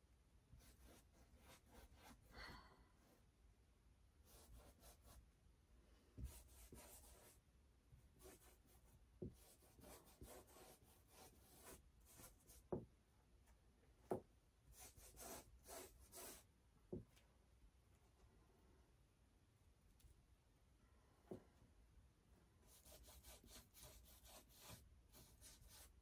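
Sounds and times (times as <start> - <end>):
brush scrubbing on canvas: 14.7 - 16.5, 22.6 - 26.0.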